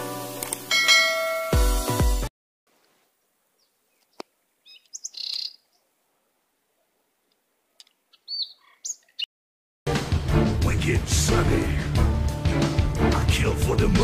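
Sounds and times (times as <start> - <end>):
birds chirping: 3.5 - 6.2, 7.7 - 9.3.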